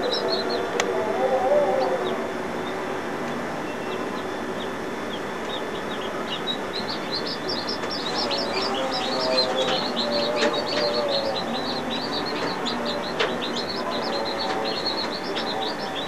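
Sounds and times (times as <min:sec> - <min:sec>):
chicks peeping: 0:00.0 - 0:16.0
steady rushing background noise: 0:00.0 - 0:16.0.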